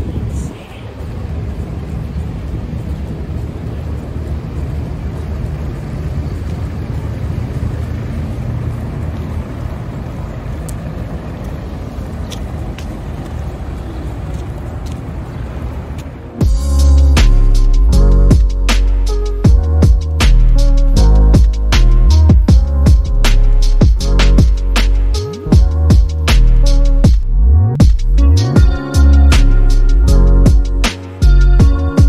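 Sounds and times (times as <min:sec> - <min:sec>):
low rumble of traffic: 0:00.0 - 0:32.0
faint clicks: 0:10.5 - 0:15.1.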